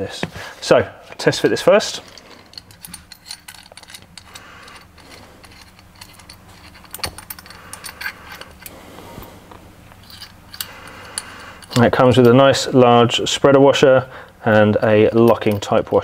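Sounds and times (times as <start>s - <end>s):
metal parts clinking: 1.8s - 8.7s, 9.9s - 12.4s.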